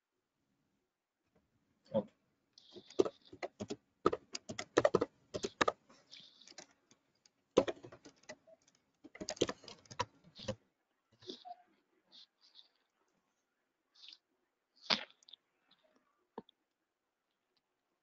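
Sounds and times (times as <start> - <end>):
computer keyboard typing: 2.8 - 5.8, 7.6 - 8.4, 9.1 - 10.6.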